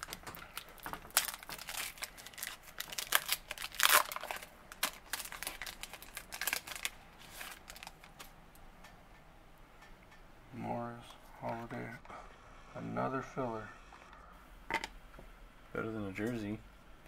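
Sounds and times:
foil wrapper crinkling and tearing: 0.0 - 8.3.

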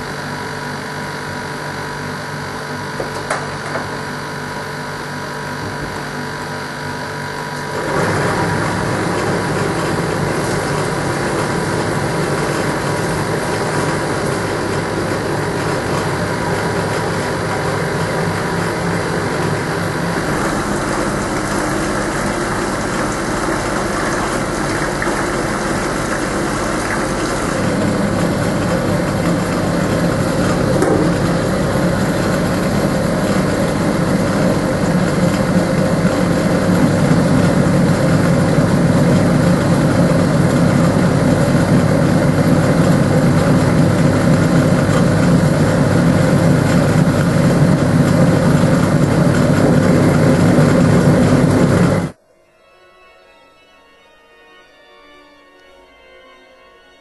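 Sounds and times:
drain pump humming: 0.0 - 52.2
water running into steel sink: 7.8 - 51.9.

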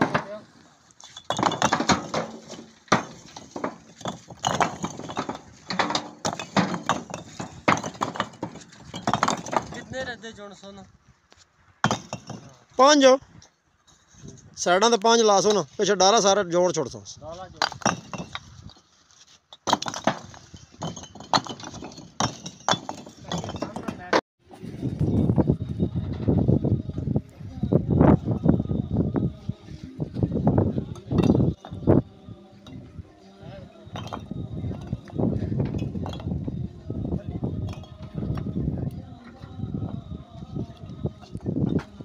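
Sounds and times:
bricks knocking onto pile: 0.0 - 0.4, 1.0 - 10.1, 11.8 - 12.6, 17.6 - 18.8, 19.5 - 24.2, 30.9 - 32.0, 33.8 - 36.6, 37.4 - 38.5.

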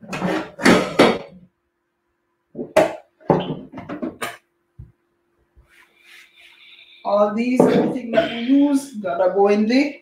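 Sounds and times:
utensils and dishes clattering: 0.0 - 1.4.

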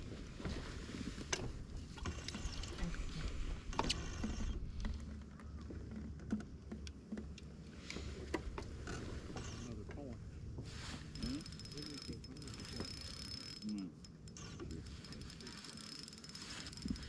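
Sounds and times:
fishing gear clicking: 11.0 - 17.0.

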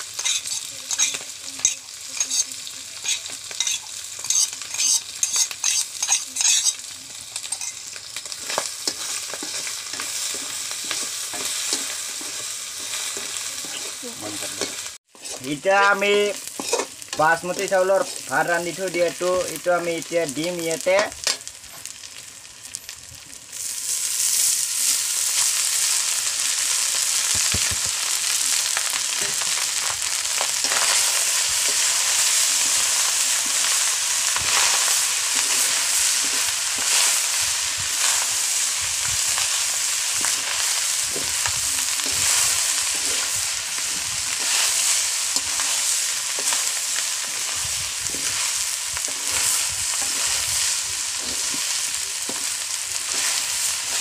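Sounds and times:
food sizzling in oil: 0.0 - 54.0
metal ladle scraping pan: 0.2 - 6.8, 7.4 - 15.5, 16.5 - 17.1.

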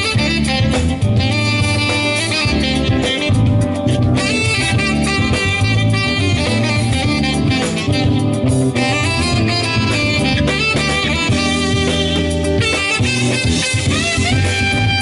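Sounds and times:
saxophone: 0.0 - 15.0
smooth jazz band playing: 0.0 - 15.0.

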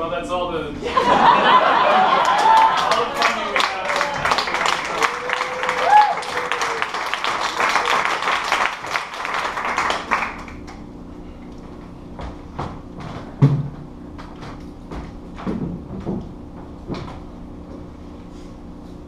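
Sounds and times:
audience applause: 1.4 - 10.7.

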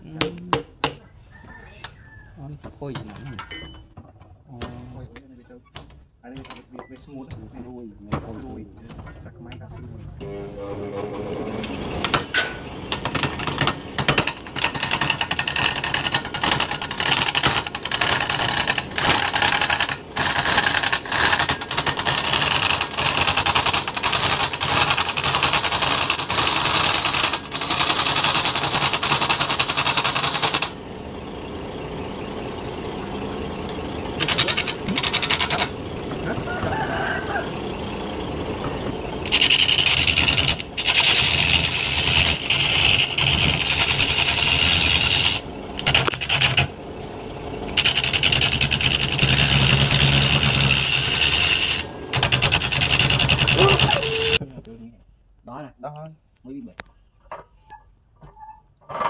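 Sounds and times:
turning tool scraping wood: 14.2 - 30.8, 34.2 - 35.8, 39.2 - 46.8, 47.7 - 54.4
lathe motor humming: 38.3 - 47.1, 47.7 - 54.4.

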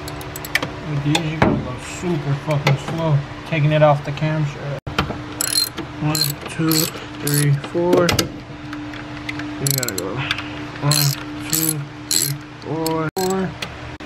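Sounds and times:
ratchet wrench clicking: 0.0 - 0.6, 5.4 - 7.5, 9.7 - 10.0, 10.9 - 13.4.

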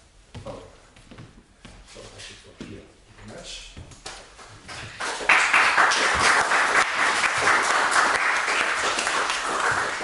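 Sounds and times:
audience applauding: 5.0 - 10.0.

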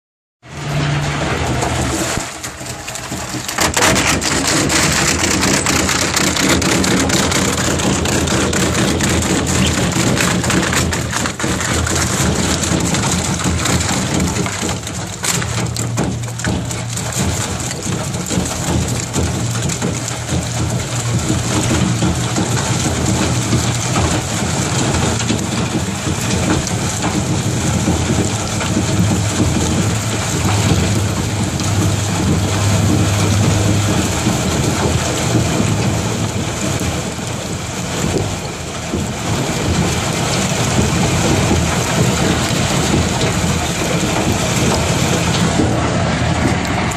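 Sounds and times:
wood splintering crackle: 0.4 - 46.9
wood grinder humming: 0.6 - 36.8.

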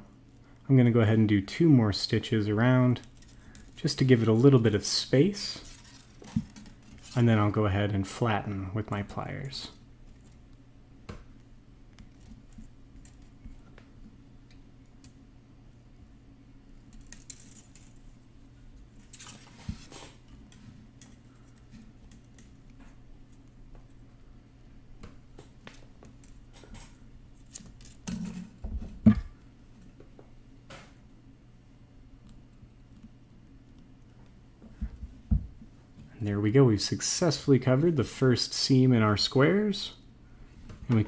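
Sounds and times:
steady low hum: 0.0 - 41.0
wire clicking and scraping: 2.9 - 4.6, 5.5 - 7.3, 11.4 - 13.9, 16.8 - 18.2, 18.9 - 23.6.

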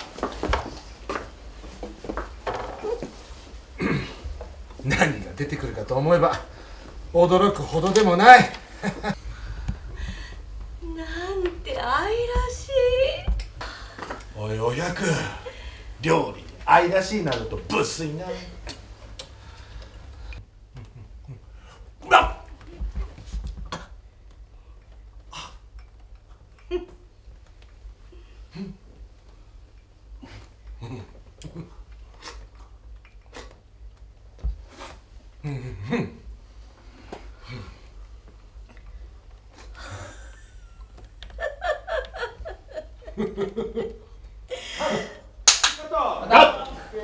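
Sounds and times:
loud short cry: 22.0 - 22.5
people laughing: 39.8 - 45.3
sharp crack: 45.4 - 45.9.

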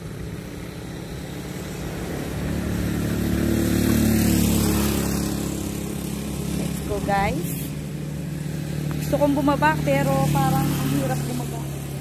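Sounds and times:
vehicle engine passing by: 0.0 - 12.0.

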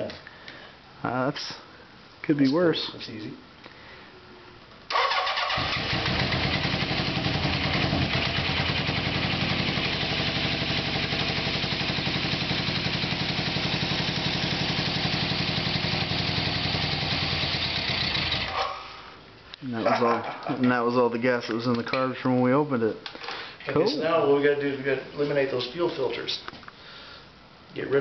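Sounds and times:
motorcycle engine running: 5.6 - 18.6.

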